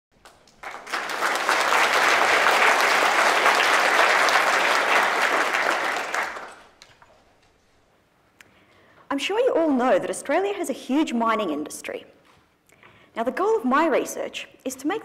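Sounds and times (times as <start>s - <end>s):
audience applauding: 0.2s - 6.9s.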